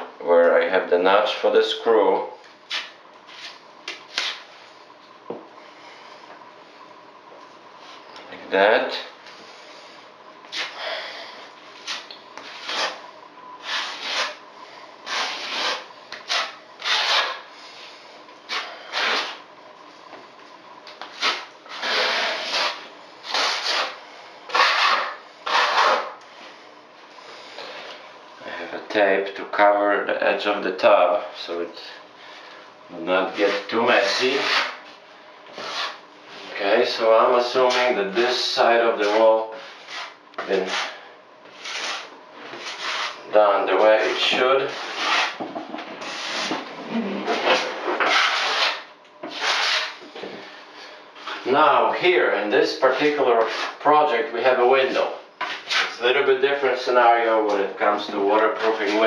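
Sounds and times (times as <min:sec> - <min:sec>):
brush scraping on wall: 0:11.8 - 0:13.0, 0:13.6 - 0:14.4, 0:15.0 - 0:17.9, 0:18.5 - 0:19.4, 0:21.0 - 0:26.2, 0:33.3 - 0:34.9, 0:35.5 - 0:36.6, 0:37.4 - 0:50.0, 0:54.9 - 0:56.0.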